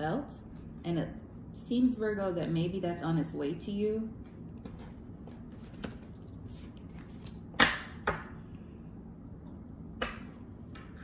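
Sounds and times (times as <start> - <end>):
cards tapping on a tabletop: 10.0 - 11.0.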